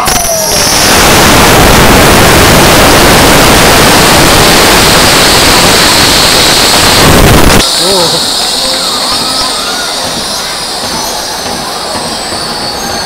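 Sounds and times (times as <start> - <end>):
air rushing out of balloons: 0.3 - 10.5
high whistle: 7.6 - 13.0.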